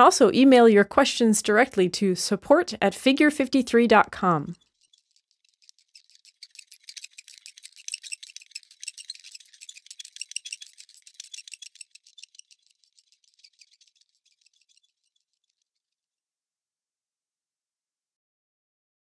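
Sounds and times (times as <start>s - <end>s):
fast high-pitched rattling clicks: 4.5s - 15.9s.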